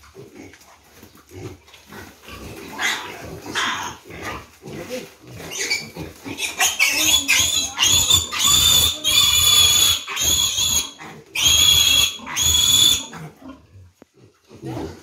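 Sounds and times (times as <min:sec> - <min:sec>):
piglet squealing: 0:05.5 - 0:13.2.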